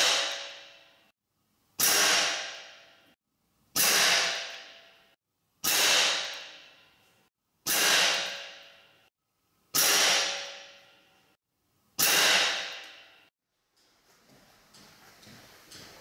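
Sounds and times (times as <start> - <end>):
air rifle shots ringing: 5.6 - 6.6, 12.0 - 12.9.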